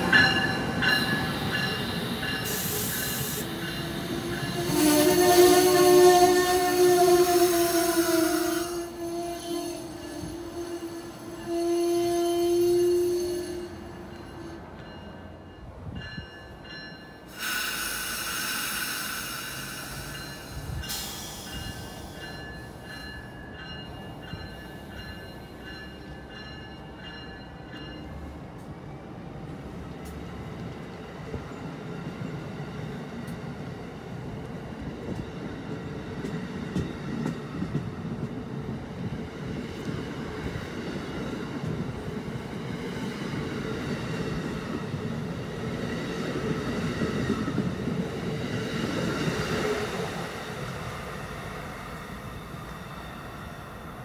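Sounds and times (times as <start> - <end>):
train rolling rumble: 0.0 - 54.0
train wheel squeal: 0.2 - 15.0, 17.3 - 28.0
loud hiss burst: 17.3 - 20.2.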